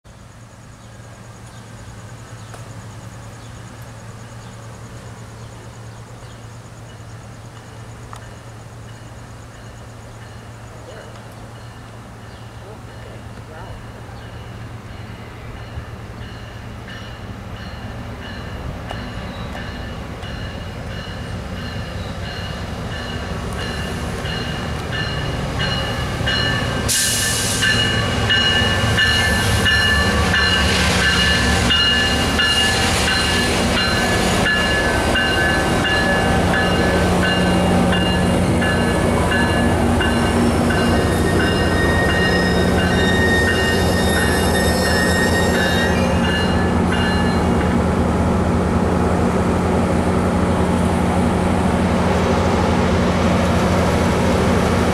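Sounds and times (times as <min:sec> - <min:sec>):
diesel locomotive rolling past: 0:00.1 - 0:54.9
brief air hiss: 0:26.9 - 0:27.8
high-pitched brake squeal: 0:40.7 - 0:47.4.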